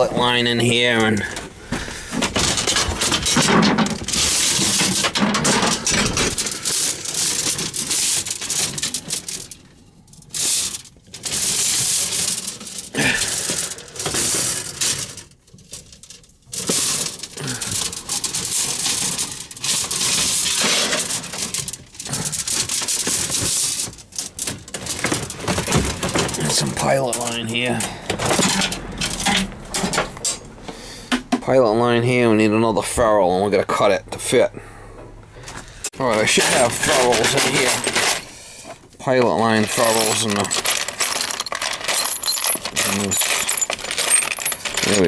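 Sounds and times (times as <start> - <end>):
metal parts clinking and rattling: 2.2 - 30.5, 36.0 - 45.0.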